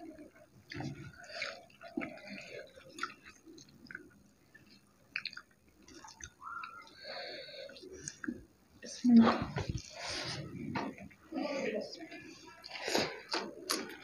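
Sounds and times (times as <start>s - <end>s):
quiet chewing: 0.0s - 8.5s, 12.0s - 14.0s
soft squishes of food mixed by hand: 0.0s - 14.0s.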